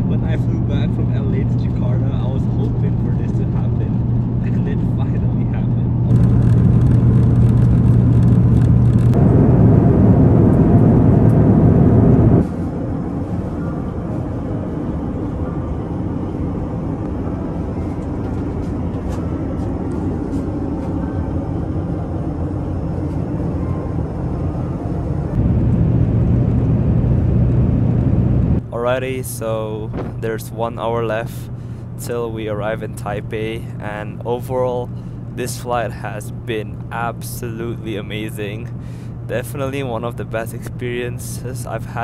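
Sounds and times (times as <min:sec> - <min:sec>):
aircraft cabin rush with low hum: 0:00.0 - 0:42.0.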